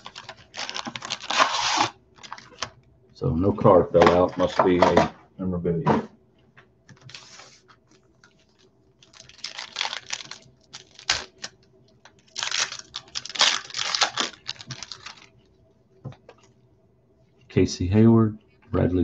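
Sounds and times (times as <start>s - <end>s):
trading cards rustling and flicking: 6.9s - 15.3s.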